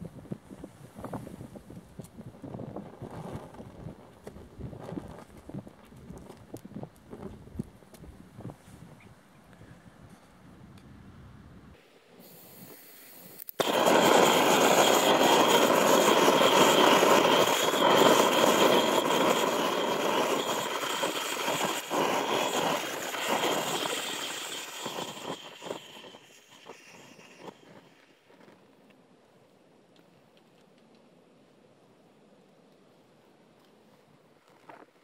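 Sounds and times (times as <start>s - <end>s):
roaring flame: 0.0s - 8.5s, 13.5s - 28.7s
fire crackling: 0.2s - 8.5s, 12.3s - 29.0s.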